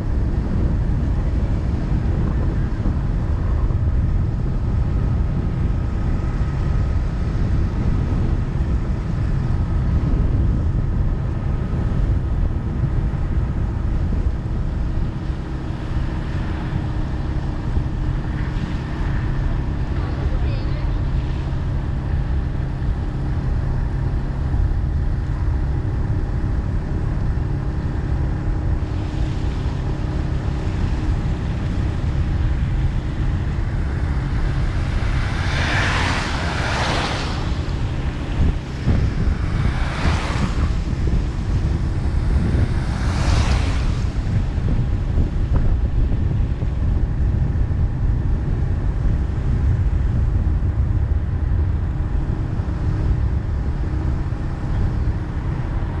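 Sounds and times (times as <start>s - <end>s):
road rumble: 0.0s - 56.0s
vehicle engine hum: 0.0s - 56.0s
wind noise on microphone: 0.0s - 56.0s
rushing swells: 28.8s - 46.0s.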